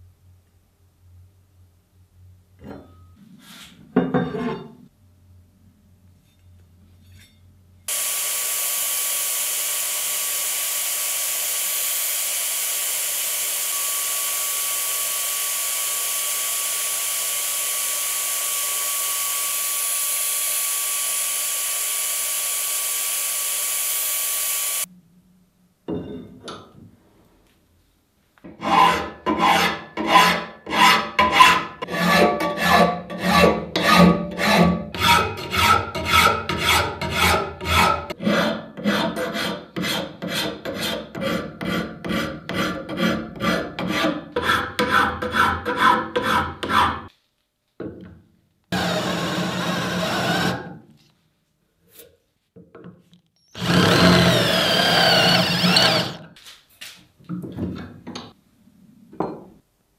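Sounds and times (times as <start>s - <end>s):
sandblasting hiss: 7.9s - 24.9s
hand file rasping on steel: 28.6s - 47.1s.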